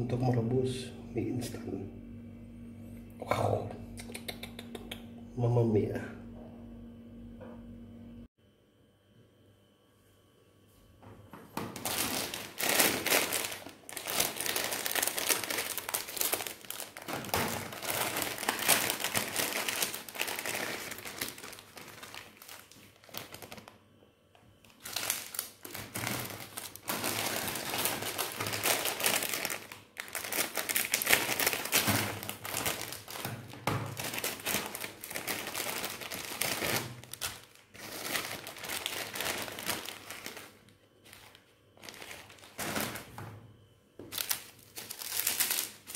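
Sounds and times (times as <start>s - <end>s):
plastic packets crinkling: 11.6s - 23.8s, 24.6s - 43.1s, 44.1s - 45.9s.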